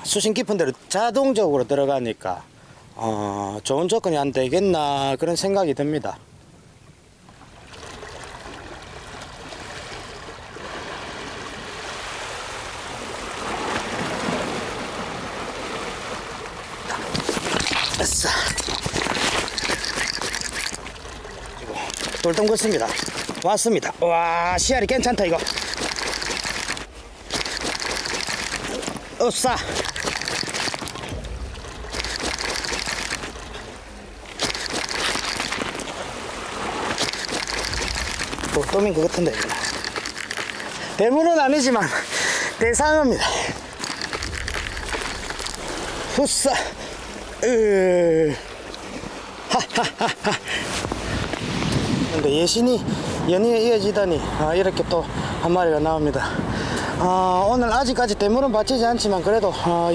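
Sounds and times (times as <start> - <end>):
sea water washing against rocks: 7.7 - 54.0.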